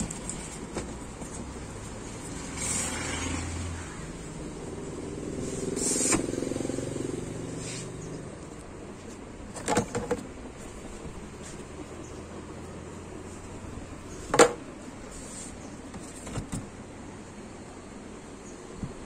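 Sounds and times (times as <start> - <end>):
passing motor vehicle hum: 0.0 - 9.3, 10.3 - 15.8.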